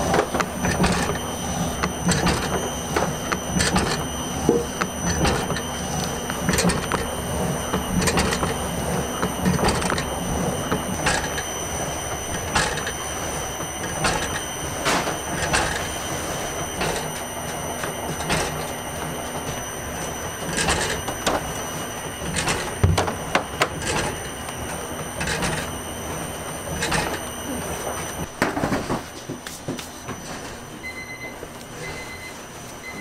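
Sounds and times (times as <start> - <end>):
machinery whining: 0.0 - 33.0
machine knocks and clicks: 0.1 - 1.2, 1.8 - 5.7, 6.3 - 7.1, 7.7 - 8.6, 9.2 - 11.5, 12.4 - 13.0, 13.8 - 16.0, 22.3 - 24.2.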